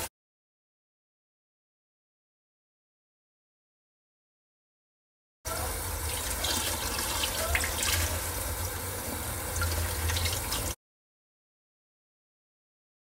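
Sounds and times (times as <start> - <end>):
tap water running into metal sink: 5.6 - 10.8.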